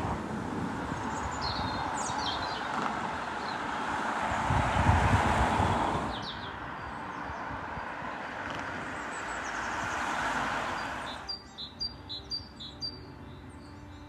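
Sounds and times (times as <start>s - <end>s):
steady outdoor rushing noise: 0.0s - 14.0s
small bird chirping: 10.8s - 14.0s.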